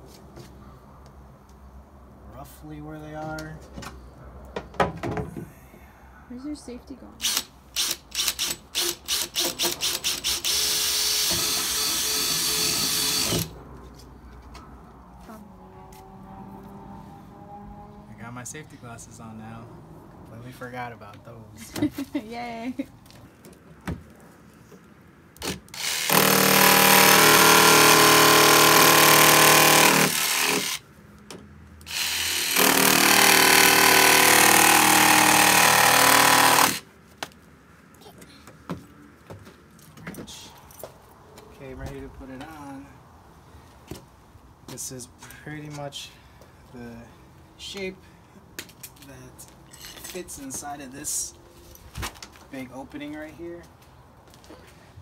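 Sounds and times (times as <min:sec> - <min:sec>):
cordless drill boring: 0:07.2 - 0:13.5, 0:25.4 - 0:30.8, 0:31.9 - 0:36.8
jigsaw cutting metal sheet: 0:07.2 - 0:13.5, 0:25.4 - 0:30.8, 0:31.9 - 0:36.8.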